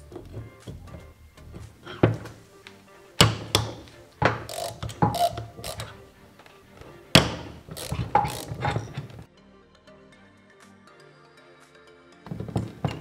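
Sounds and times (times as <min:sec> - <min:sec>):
metal knocks: 0:00.0 - 0:02.4, 0:03.2 - 0:06.0, 0:06.9 - 0:09.3, 0:12.3 - 0:13.0
background music: 0:00.0 - 0:13.0
ratchet clicking: 0:03.2 - 0:06.0, 0:07.2 - 0:09.3.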